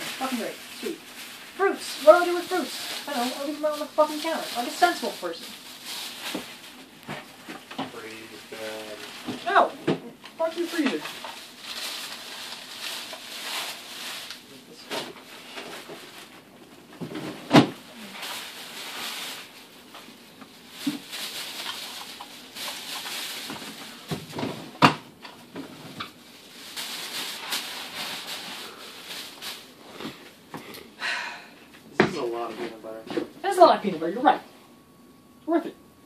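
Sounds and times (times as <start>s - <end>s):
grocery bag rustling: 0.0s - 24.8s, 25.4s - 30.5s
items clunking and knocking: 6.3s - 8.2s, 14.8s - 17.8s, 20.8s - 26.2s.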